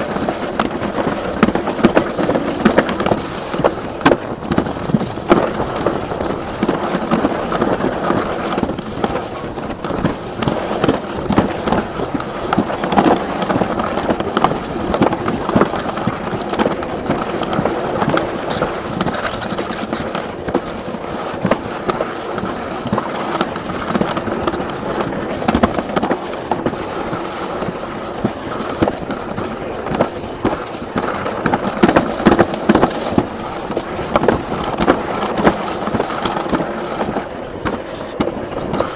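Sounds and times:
sled rumbling clatter on track: 0.0s - 38.9s.

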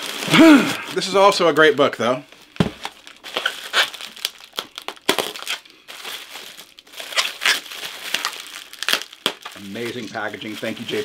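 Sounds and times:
packaging crinkling and rustling: 0.0s - 11.0s.

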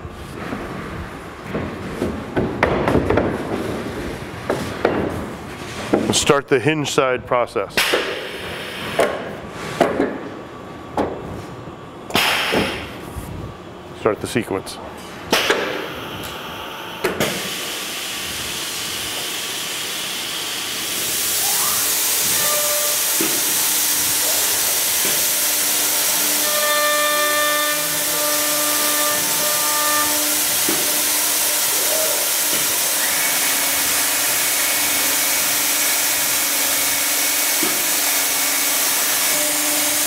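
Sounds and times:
steady hissing rush: 16.4s - 26.4s, 30.4s - 36.1s
high whine: 20.9s - 34.3s.

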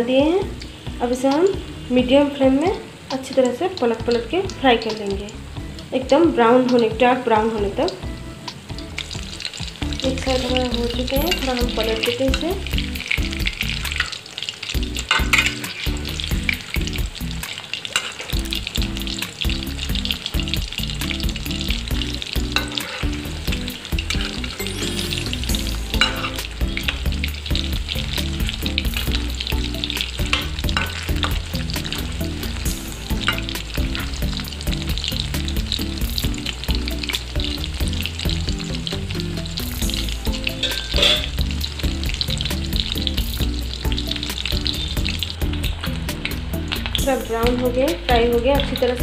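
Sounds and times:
food deep-frying in hot oil: 0.0s - 49.0s
metal spatula scraping and stirring: 9.0s - 19.4s, 21.9s - 35.6s, 40.4s - 41.4s.

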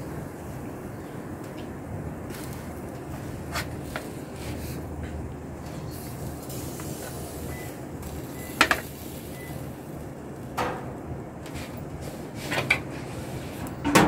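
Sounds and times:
metal clanks on grill: 8.5s - 9.0s, 10.5s - 11.7s, 13.7s - 14.0s.

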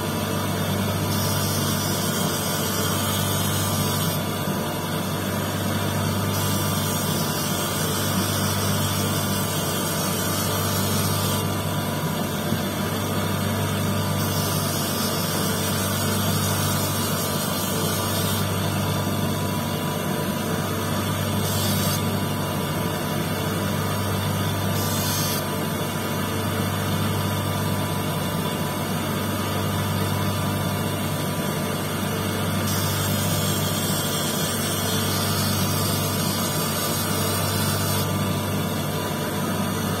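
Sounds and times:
electric motor humming: 1.0s - 19.8s, 20.5s - 25.5s, 32.6s - 38.7s.

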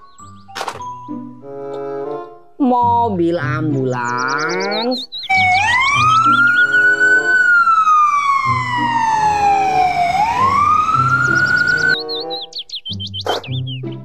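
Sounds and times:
light background music: 0.0s - 14.0s
ambulance siren wailing: 5.3s - 12.1s.

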